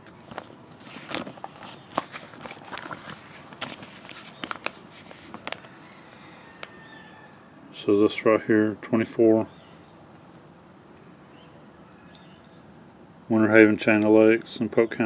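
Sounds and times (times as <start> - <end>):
paper pages rustling: 0.0 - 6.0.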